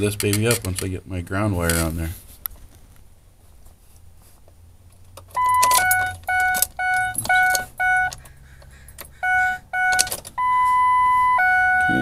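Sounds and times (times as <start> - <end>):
dashboard warning dings: 5.2 - 12.0
short high beep: 9.2 - 12.0.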